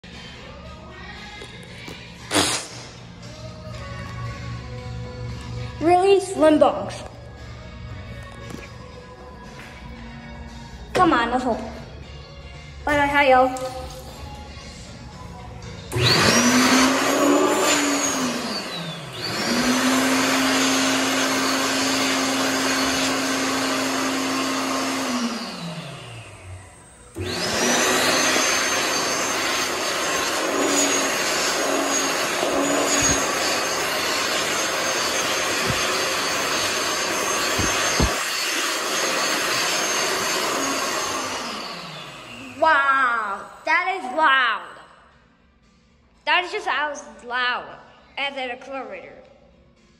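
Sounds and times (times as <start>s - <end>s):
hand dryer blowing: 2.2s - 3.1s, 15.9s - 43.4s.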